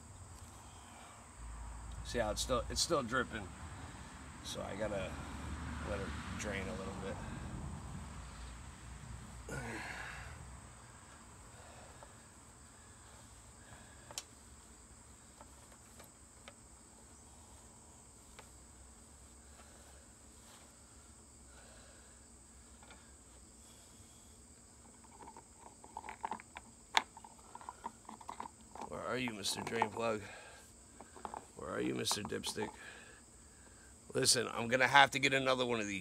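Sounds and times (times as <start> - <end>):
crickets trilling: 0.0 - 36.0
rag rustling on engine deck: 11.0 - 21.9, 22.5 - 34.8.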